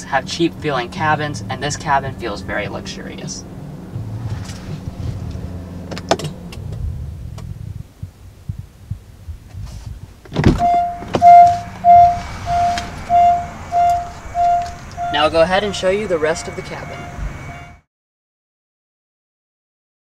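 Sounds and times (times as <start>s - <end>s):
low hum: 0.7s - 17.8s
car door opening thump: 10.3s - 11.6s
car warning chime beeping: 10.6s - 17.8s.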